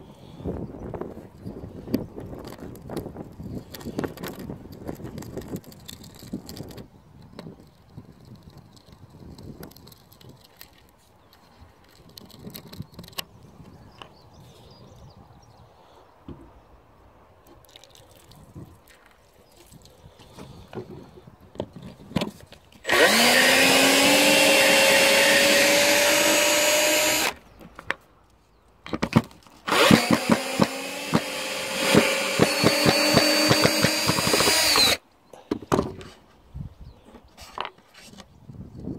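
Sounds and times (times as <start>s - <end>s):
cordless drill motor whine: 22.9s - 27.4s, 29.7s - 35.0s
rapid drill clicks: 22.9s - 27.4s, 29.7s - 35.0s.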